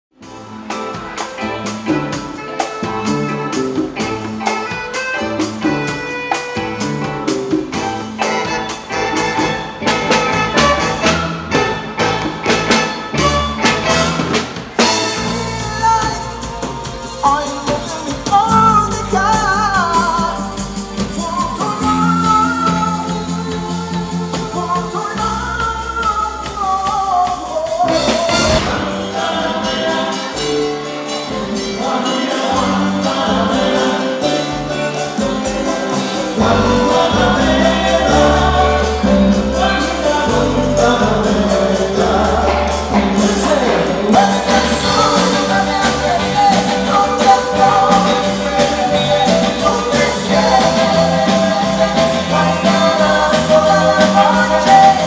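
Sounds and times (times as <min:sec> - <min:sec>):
drum kit: 0:00.1 - 0:55.0
percussion: 0:00.2 - 0:55.0
male lead singer: 0:14.8 - 0:30.8, 0:31.4 - 0:55.0.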